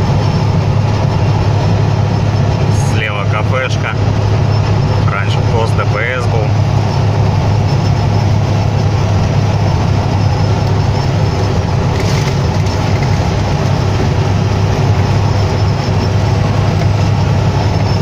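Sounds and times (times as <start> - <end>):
truck engine drone: 0.0 - 18.0
tyre and wind noise: 7.0 - 18.0.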